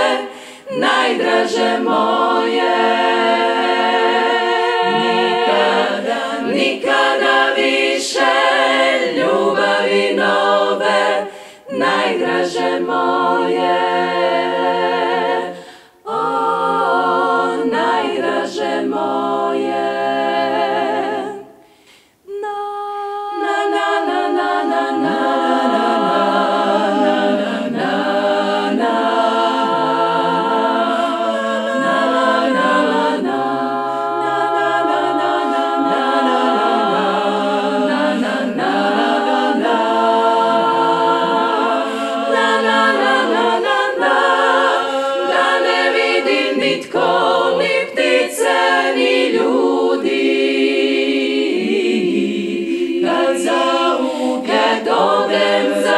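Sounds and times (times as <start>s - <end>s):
women's choir singing in harmony: 0.0s - 55.9s.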